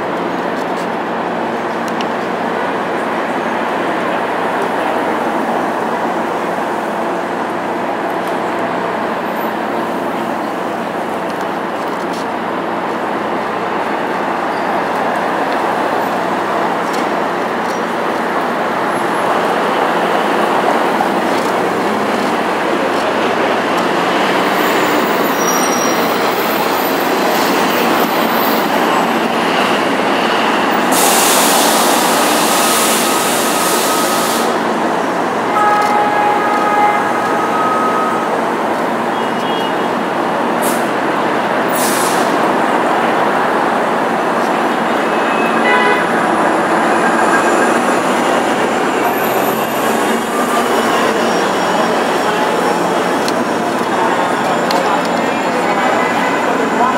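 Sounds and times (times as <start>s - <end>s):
city street traffic: 0.0s - 56.9s
hiss: 30.9s - 34.6s.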